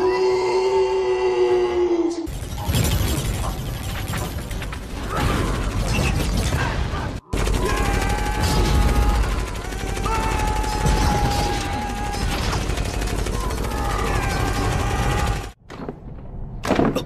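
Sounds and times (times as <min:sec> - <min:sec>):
sci-fi gunfire: 0:02.3 - 0:15.6.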